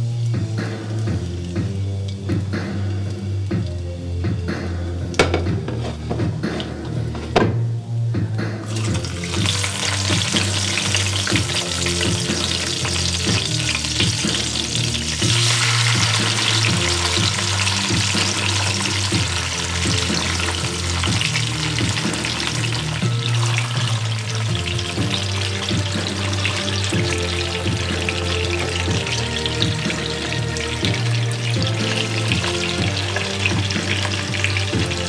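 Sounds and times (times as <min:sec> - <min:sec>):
food sizzling in hot oil: 0:08.7 - 0:35.0.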